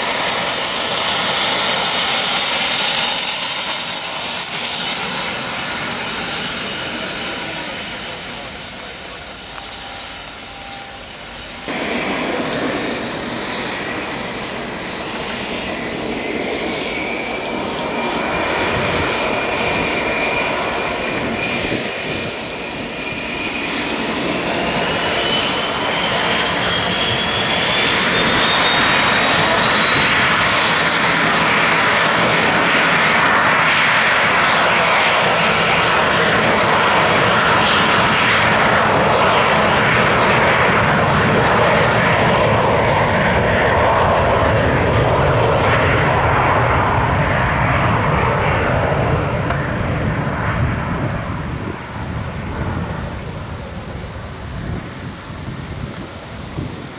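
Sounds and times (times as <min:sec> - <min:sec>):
jet engines spooling up: 0:00.0 - 0:56.9.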